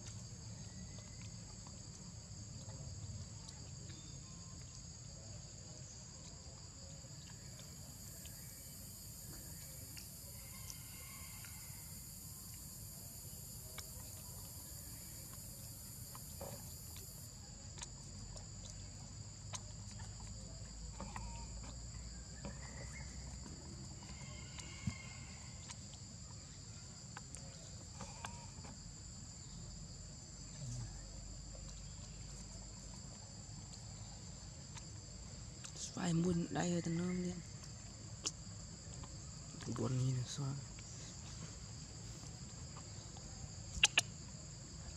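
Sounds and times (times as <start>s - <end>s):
insects chorus: 0.0s - 44.9s
faint ticks: 6.2s - 18.9s, 19.5s - 26.1s, 27.0s - 28.8s, 42.2s - 44.2s.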